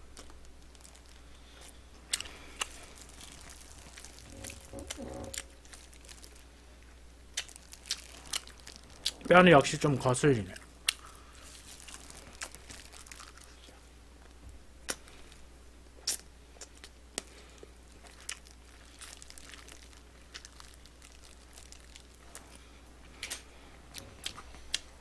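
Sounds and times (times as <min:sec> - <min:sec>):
faint low hum: 0:00.0 - 0:25.0
person chewing crunchy food: 0:00.1 - 0:06.5, 0:07.3 - 0:09.3, 0:10.5 - 0:13.9, 0:16.0 - 0:23.5
light crinkling: 0:00.1 - 0:14.4, 0:16.7 - 0:24.9.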